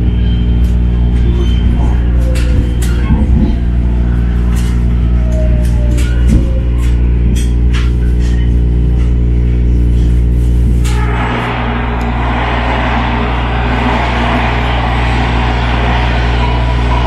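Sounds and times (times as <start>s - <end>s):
broad rushing noise: 10.8s - 17.0s.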